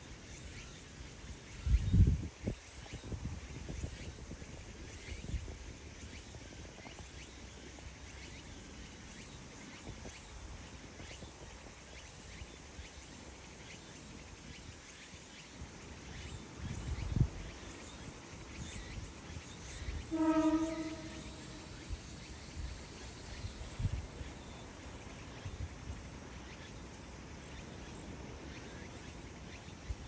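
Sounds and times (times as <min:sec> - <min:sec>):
insect chirps: 0:00.0 - 0:30.0
short horn blast: 0:20.0 - 0:21.8.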